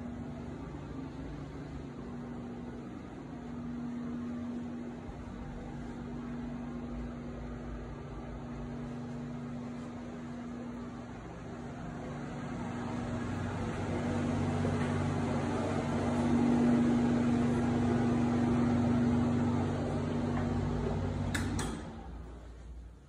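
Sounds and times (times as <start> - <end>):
ventilation fan humming: 0.0 - 23.0.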